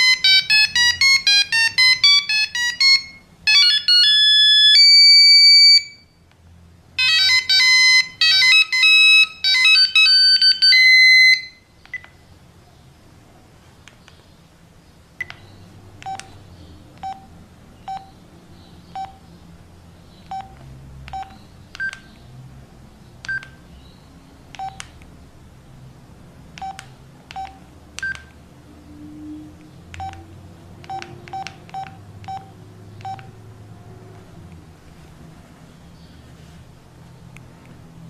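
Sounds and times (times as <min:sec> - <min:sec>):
phone keypad beeps: 0:00.0 - 0:06.0, 0:07.0 - 0:12.2, 0:16.0 - 0:16.4, 0:17.0 - 0:17.3, 0:17.9 - 0:18.2, 0:19.0 - 0:19.2, 0:20.3 - 0:22.1, 0:23.3 - 0:23.6, 0:24.6 - 0:24.9, 0:26.6 - 0:28.3, 0:30.0 - 0:30.2, 0:30.9 - 0:33.3.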